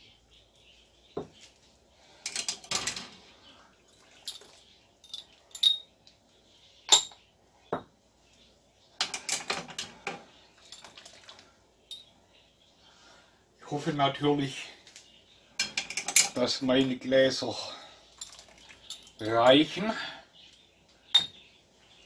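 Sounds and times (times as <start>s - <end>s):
metal utensils clattering on pots: 2.2s - 3.3s, 9.0s - 11.1s, 15.6s - 16.4s, 18.2s - 19.3s.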